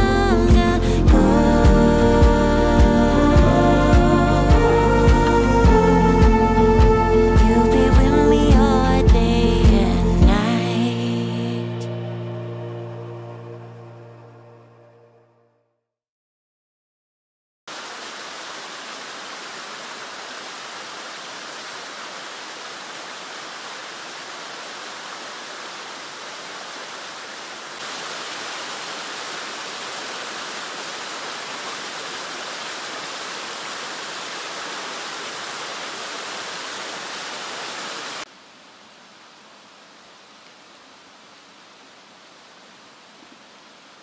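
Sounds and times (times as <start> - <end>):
waterfall rushing: 17.7 - 38.3.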